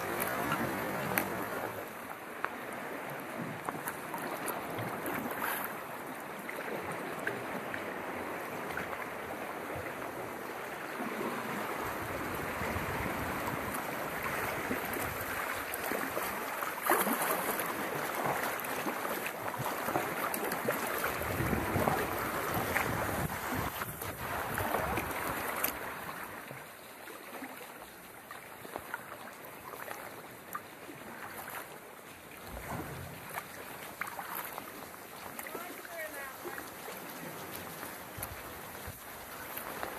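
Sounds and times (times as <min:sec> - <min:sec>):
water splashing against kayak: 0:00.0 - 0:39.9.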